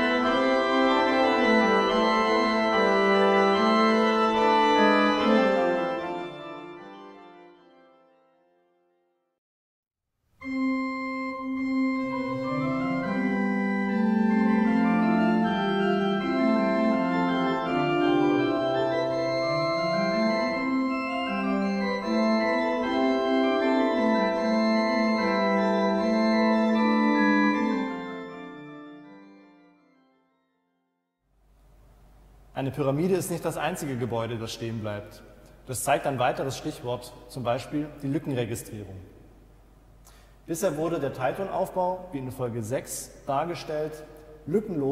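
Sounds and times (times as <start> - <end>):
pipe organ chords: 0.0 - 8.6, 10.4 - 30.6.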